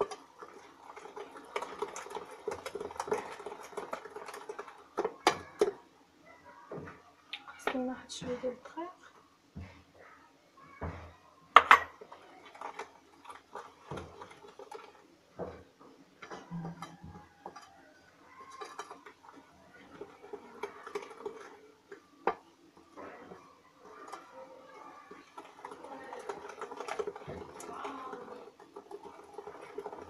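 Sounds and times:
whisk beating batter in glass bowl: 0:00.0 - 0:05.8, 0:12.0 - 0:30.0.

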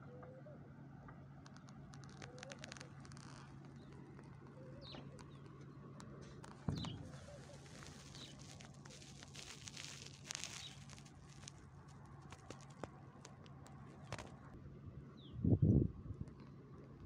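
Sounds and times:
soft rush of noise: 0:06.2 - 0:14.6.

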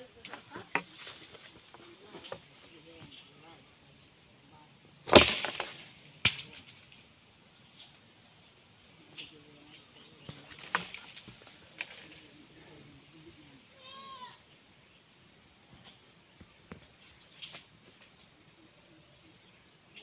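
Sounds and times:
high insect drone: 0:00.0 - 0:20.0
leaves rustling: 0:05.0 - 0:08.1, 0:09.0 - 0:14.3
branches cracking and snapping: 0:05.1 - 0:06.7.

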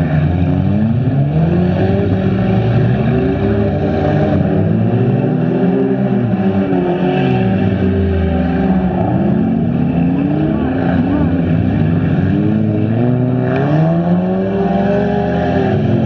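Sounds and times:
car engines revving: 0:00.0 - 0:16.0.

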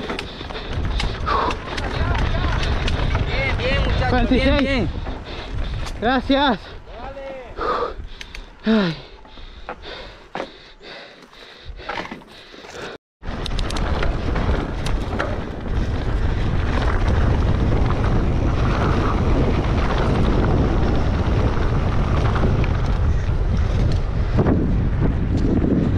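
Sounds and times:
person panting: 0:00.0 - 0:02.8, 0:04.9 - 0:06.0, 0:06.6 - 0:07.0, 0:07.6 - 0:13.0
scattered clicks: 0:00.0 - 0:03.4, 0:08.1 - 0:08.5, 0:13.3 - 0:14.1
wind buffeting microphone: 0:00.0 - 0:11.9, 0:13.2 - 0:25.9.

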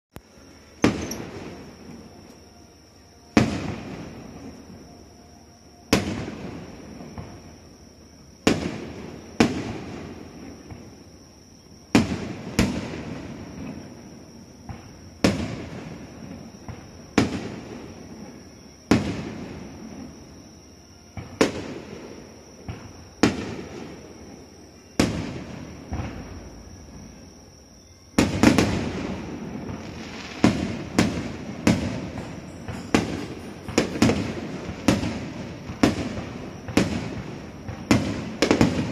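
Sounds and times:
firework shells bursting: 0:00.8 - 0:02.4.

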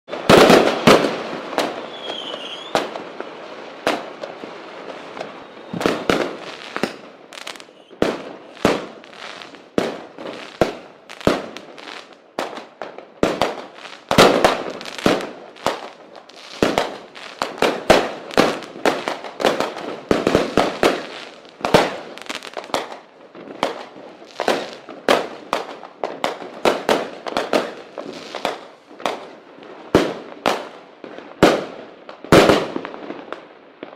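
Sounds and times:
fireworks bangs and crackling: 0:00.1 - 0:33.9
firework whistle: 0:01.6 - 0:03.4, 0:04.8 - 0:09.5.

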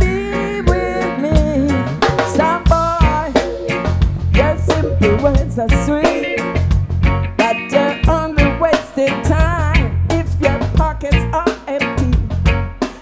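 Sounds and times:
bass line: 0:00.0 - 0:07.4
drum kit: 0:00.0 - 0:13.0
electric guitar: 0:00.0 - 0:13.0.

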